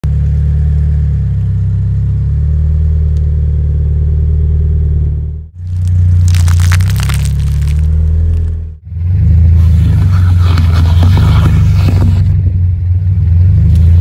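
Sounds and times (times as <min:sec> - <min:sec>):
crackling crunch: 0:05.6 - 0:08.8.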